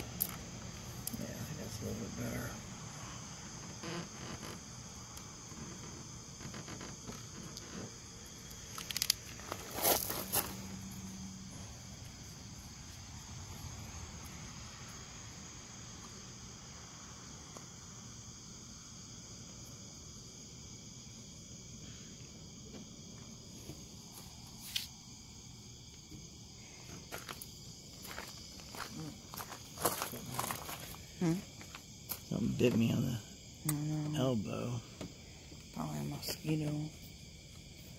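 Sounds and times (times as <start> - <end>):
night insects chorus: 0.0 - 37.9
tape crackling: 3.6 - 10.8.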